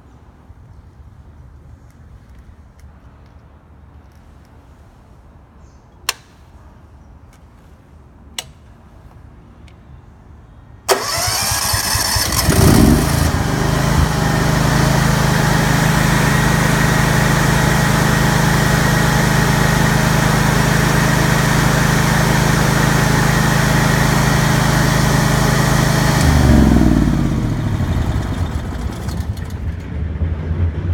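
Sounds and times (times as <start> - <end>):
electric starter cranking: 10.9 - 29.8
generator engine running: 10.9 - 29.9.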